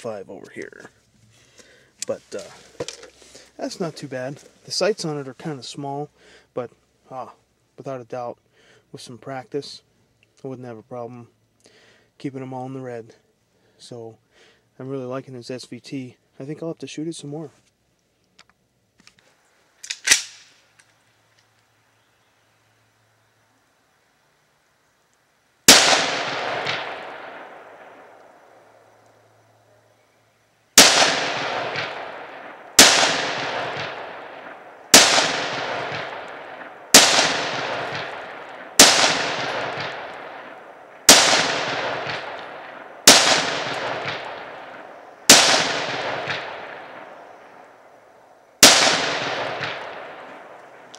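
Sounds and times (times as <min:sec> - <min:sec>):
rifle shots echoing: 0:25.7 - 0:28.8, 0:30.8 - 0:48.0, 0:48.6 - 0:50.9.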